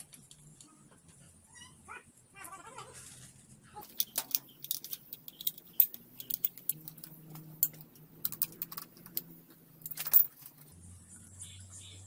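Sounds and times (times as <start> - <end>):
metal tools clinking: 3.8 - 10.7.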